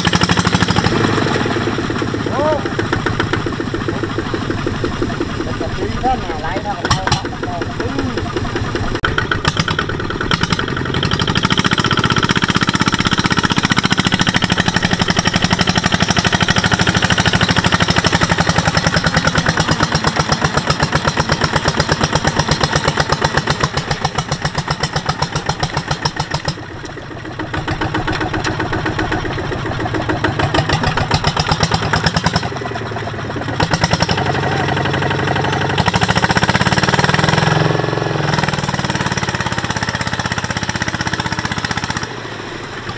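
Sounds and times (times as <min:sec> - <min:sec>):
diesel tractor engine chugging: 0:00.0 - 0:42.9.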